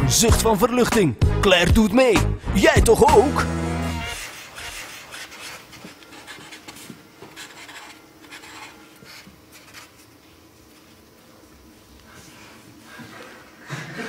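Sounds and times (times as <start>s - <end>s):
pen scratching on paper: 4.0s - 10.0s.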